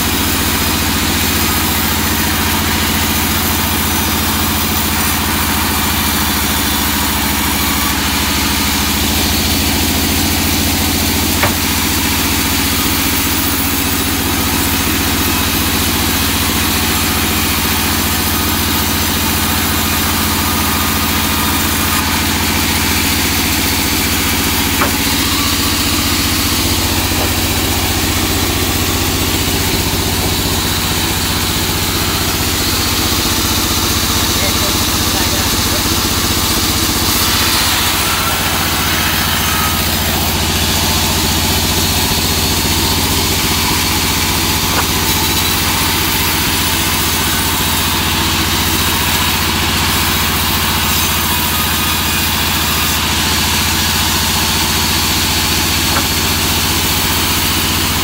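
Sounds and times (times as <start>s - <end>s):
band sawmill drone: 5.4s - 15.0s, 16.6s - 47.6s, 52.5s - 58.0s.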